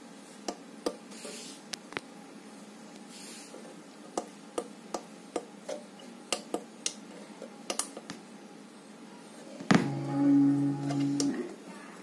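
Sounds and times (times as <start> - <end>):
loud low steady tones: 9.7 - 11.4.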